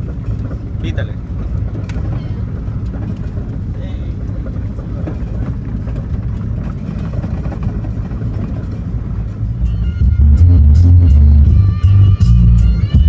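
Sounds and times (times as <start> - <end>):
car interior low rumble: 0.0 - 13.0
bass-heavy music on car stereo: 9.6 - 13.0.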